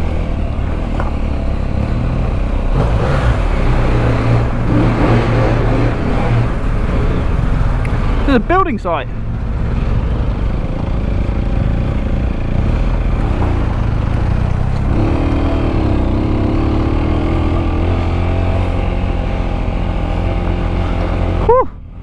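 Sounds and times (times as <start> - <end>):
motorcycle engine under load: 0.0 - 8.4.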